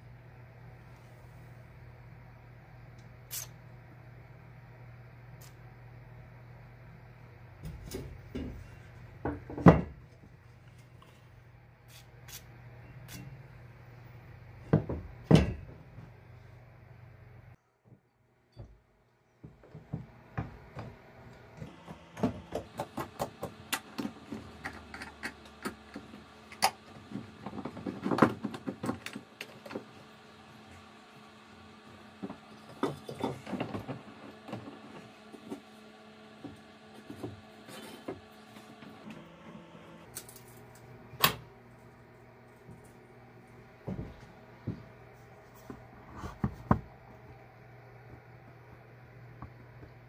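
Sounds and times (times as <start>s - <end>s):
faint steady hum: 0.0s - 50.0s
metal clanking and knocking: 14.7s - 16.0s.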